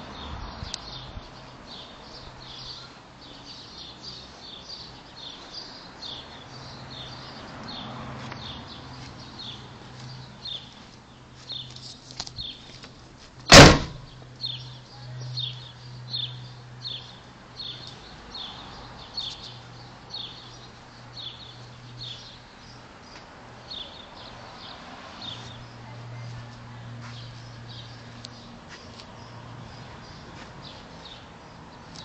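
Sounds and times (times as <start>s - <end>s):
loud bang: 13.5s - 14.1s.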